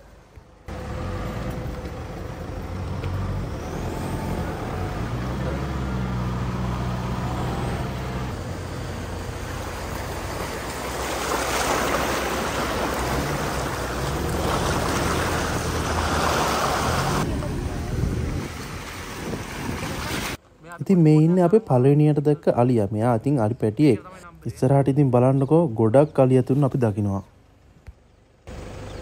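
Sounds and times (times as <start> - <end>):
off-road vehicle engine running: 0.0 - 20.4, 27.4 - 29.0.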